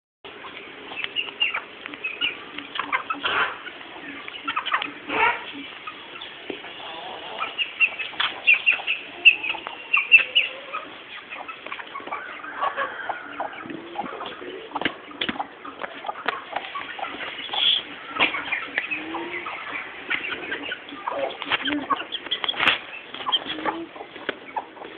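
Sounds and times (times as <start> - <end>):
chickens clucking: 0.3 - 24.9.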